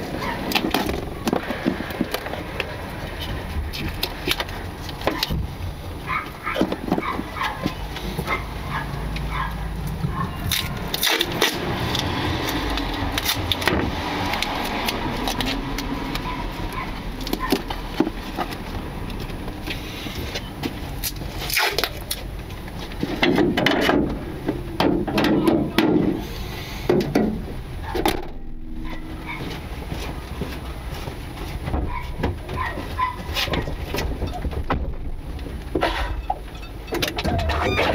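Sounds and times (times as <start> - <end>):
loud thuds: 26.9 - 30.2, 33.5 - 35.6
low rumble: 27.4 - 30.9.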